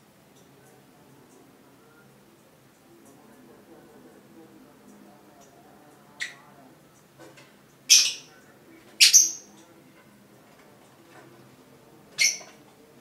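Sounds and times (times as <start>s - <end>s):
lovebird shrill calls: 12.2s - 12.5s.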